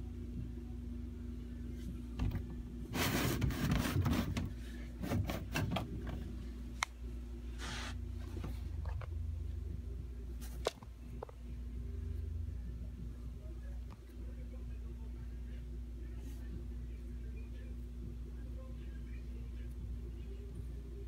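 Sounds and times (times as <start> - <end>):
steady low hum: 0.0 - 21.0
rustling and rubbing: 2.8 - 6.4, 7.5 - 9.1.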